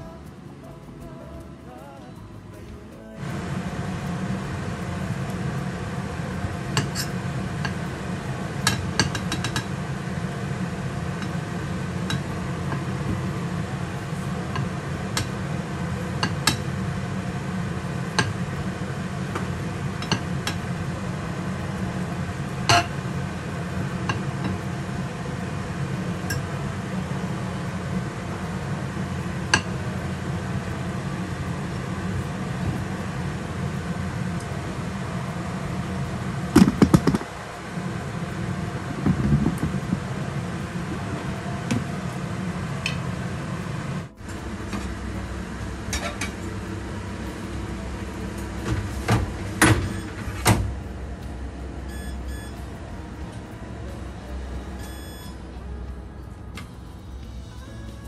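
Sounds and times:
low hum: 0.0 - 58.0.

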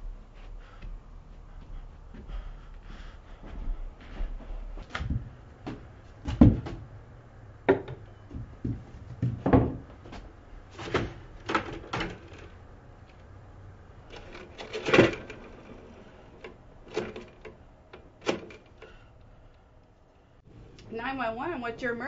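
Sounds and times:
objects knocking on a table: 7.7 - 9.8.

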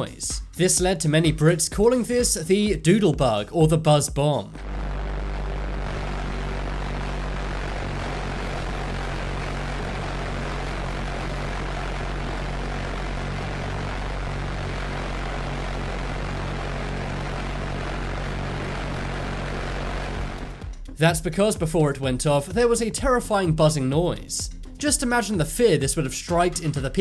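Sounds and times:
pulse-jet engine buzzing: 4.5 - 21.0.

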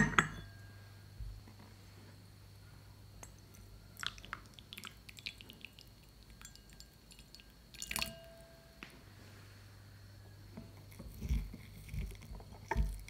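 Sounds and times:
faint steady ring: 0.0 - 1.6, 5.5 - 11.6
hot water pouring into glass bowl: 4.0 - 8.4.

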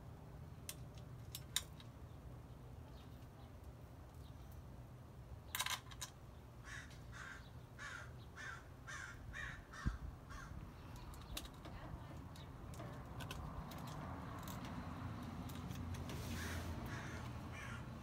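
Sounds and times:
metallic clicks of handled hardware: 0.6 - 2.0, 12.3 - 16.0
crow cawing: 6.6 - 10.6, 16.3 - 18.0.

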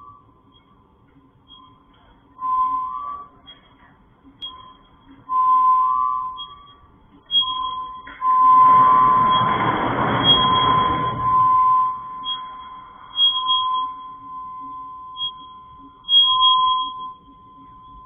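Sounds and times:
eerie ringing pings: 0.0 - 18.0
loud rushing noise: 8.6 - 11.6.

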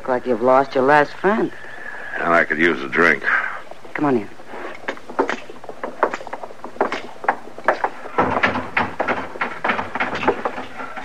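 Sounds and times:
low background murmur: 0.0 - 11.0
boot footsteps on wooden floor: 4.4 - 11.0.

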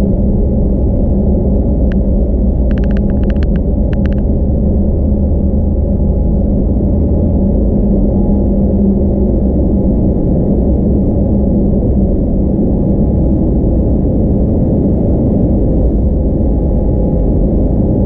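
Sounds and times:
airplane cabin rumble: 0.0 - 18.0
light clicks: 2.7 - 4.2.

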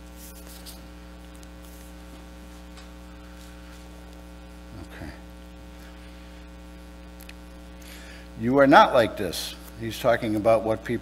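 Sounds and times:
electrical mains hum: 0.0 - 11.0
faint voice: 4.7 - 5.2.

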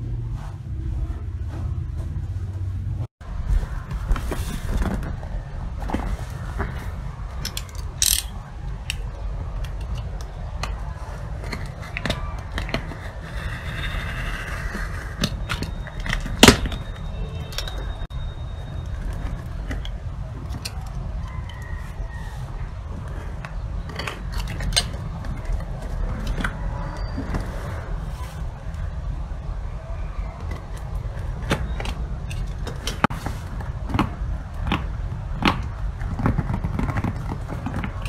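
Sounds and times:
fingers scratching on cardboard: 11.0 - 16.2.

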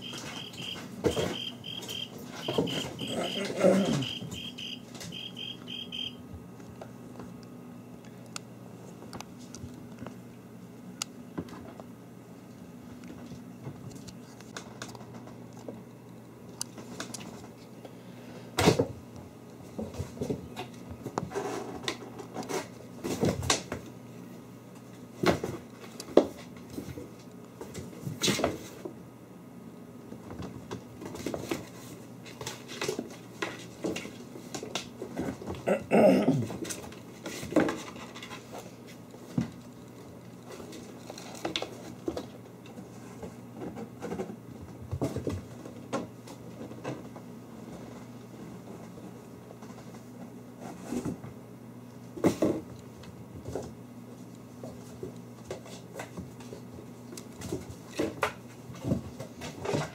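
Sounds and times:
thumps and knocks: 0.0 - 4.6.

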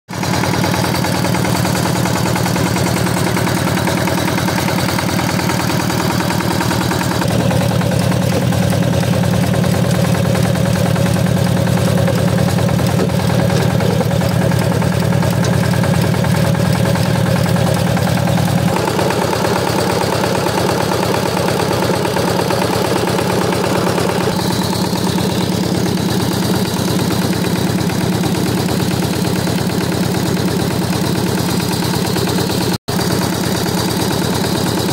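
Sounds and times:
tiller engine running: 0.1 - 34.9
tines churning wet soil: 0.2 - 34.9.

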